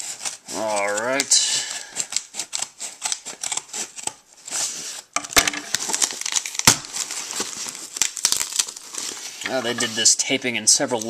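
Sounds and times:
scissors snipping packing tape: 0:00.0 - 0:04.2
tape tearing: 0:00.0 - 0:10.1.

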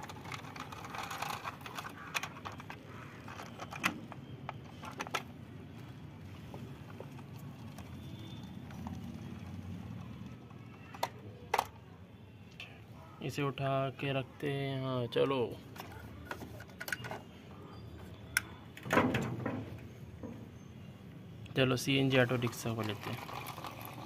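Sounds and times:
plastic toy clicks and knocks: 0:00.0 - 0:05.3, 0:10.5 - 0:11.8, 0:15.8 - 0:17.2.

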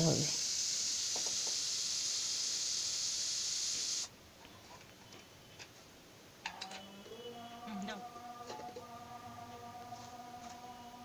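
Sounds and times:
pressure cooker hissing steam: 0:00.0 - 0:04.1.

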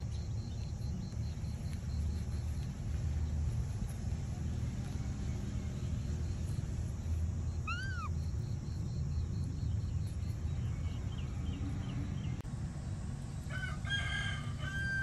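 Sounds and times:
faint rapid chirping: 0:00.0 - 0:12.4
animal call: 0:07.6 - 0:08.3.

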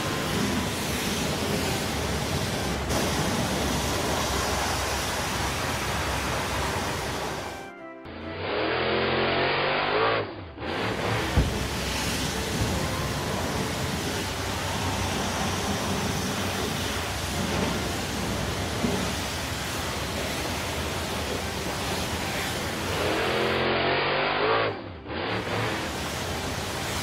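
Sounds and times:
foam nozzle spray hissing: 0:00.0 - 0:07.5, 0:11.0 - 0:23.1, 0:25.4 - 0:27.0
vehicle engine revving: 0:00.0 - 0:07.6, 0:08.2 - 0:27.0.

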